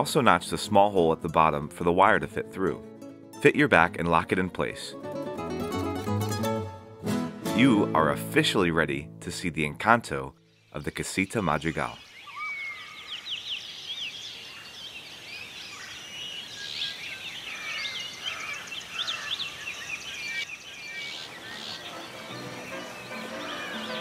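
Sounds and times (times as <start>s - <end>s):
short chirping animal calls: 12.0s - 14.8s.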